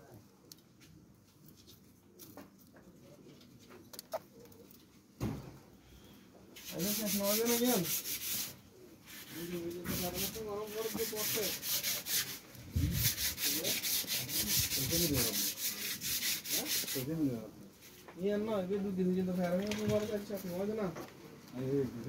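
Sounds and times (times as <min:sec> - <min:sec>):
scratchy rustling on microphone: 0:06.6 - 0:18.1, 0:19.3 - 0:20.8.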